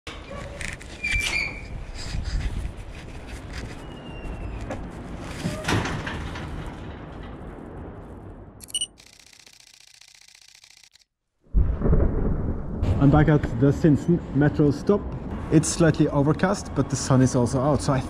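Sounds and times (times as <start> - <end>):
metal gate squealing and clanking: 0.1 - 1.8
high ringing tone: 8.6 - 9.2.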